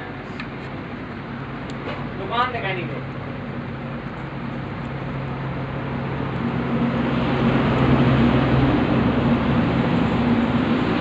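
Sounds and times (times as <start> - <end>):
low machine hum: 0.0 - 11.0
rushing air noise: 3.2 - 11.0.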